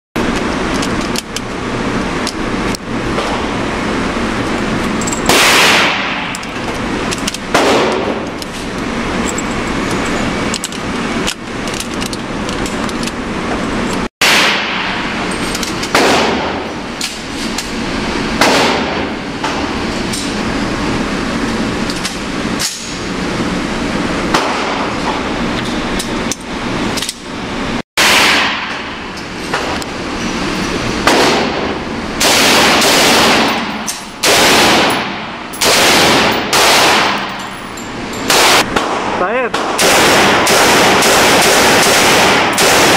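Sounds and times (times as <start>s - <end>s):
steady background hum: 0.2s - 42.9s
echoing gunshots: 5.3s - 6.4s, 7.5s - 8.2s, 14.2s - 15.2s, 15.9s - 17.0s, 18.4s - 19.8s, 28.0s - 29.8s, 31.0s - 37.4s, 38.3s - 42.9s.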